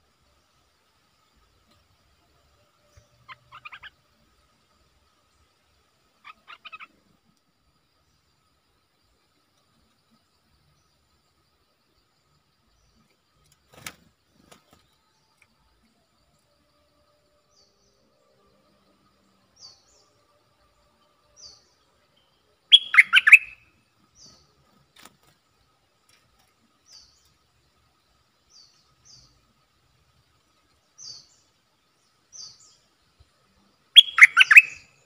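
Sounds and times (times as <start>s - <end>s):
bulbul singing: 19.1s - 24.6s, 30.8s - 33.1s, 33.7s - 35.0s.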